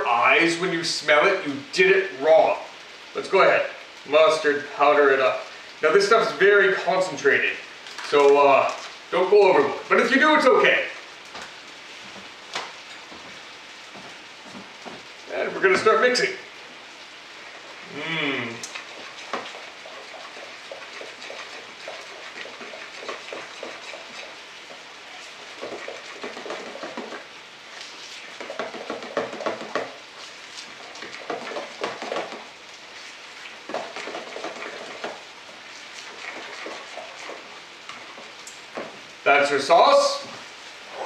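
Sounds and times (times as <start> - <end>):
spoon stirring thick sauce: 18.6 - 27.2, 28.0 - 38.4.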